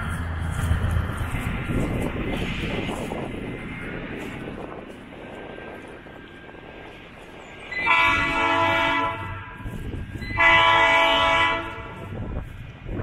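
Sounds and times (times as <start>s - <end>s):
low engine rumble: 0.0s - 13.0s
locomotive air horn blasts: 7.8s - 9.7s, 10.3s - 12.1s.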